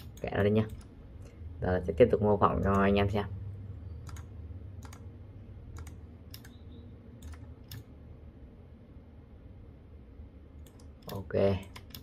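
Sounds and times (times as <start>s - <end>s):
faint low hum: 0.0s - 12.0s
mouse and keyboard clicks: 5.7s - 7.9s.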